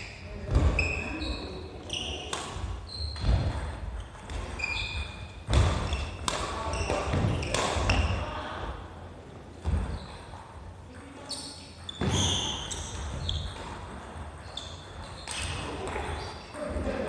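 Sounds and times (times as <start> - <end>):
shoes squeaking on wooden floor: 0.6 - 8.1, 9.6 - 10.4, 11.2 - 16.6
racket striking shuttlecock: 2.3 - 4.6, 5.4 - 8.2.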